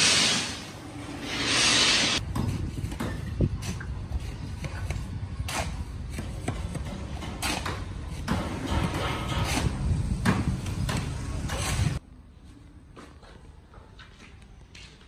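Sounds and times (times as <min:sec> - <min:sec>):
sharp knocks and clanks: 0:04.6 - 0:11.7.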